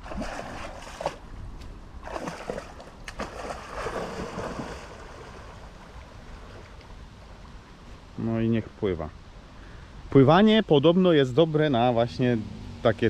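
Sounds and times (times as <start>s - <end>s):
dog swimming and splashing: 0.0s - 1.2s, 2.0s - 6.5s.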